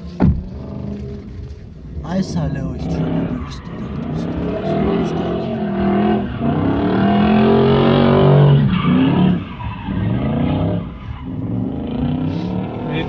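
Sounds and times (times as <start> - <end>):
car engine revving: 0.0 - 13.0
tyre squeal: 2.9 - 13.0.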